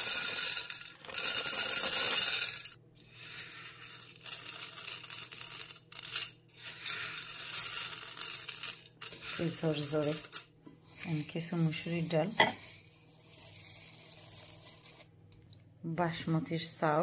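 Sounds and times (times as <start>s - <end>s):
dried grains poured onto plate: 3.2s - 15.1s.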